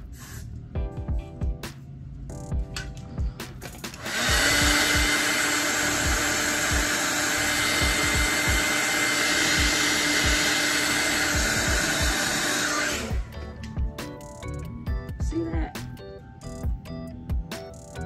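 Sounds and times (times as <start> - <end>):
background music with steady beat: 0.0 - 18.0
hair dryer blowing: 3.9 - 13.4.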